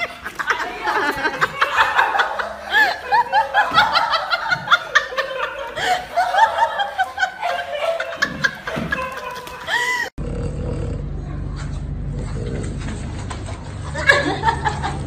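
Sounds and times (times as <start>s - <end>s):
high-pitched laughing: 0.0s - 10.1s
low hum: 10.2s - 15.0s.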